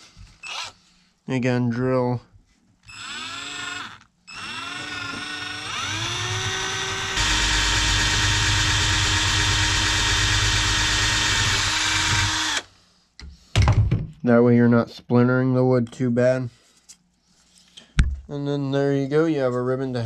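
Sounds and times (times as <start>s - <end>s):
cordless drill boring wood: 0.4s - 0.8s, 2.8s - 12.7s.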